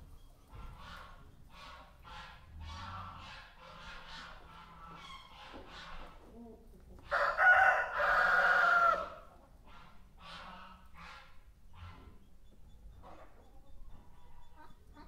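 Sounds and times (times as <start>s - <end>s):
poultry calls: 0.0s - 6.2s, 7.1s - 15.0s
rooster crowing: 7.1s - 9.2s.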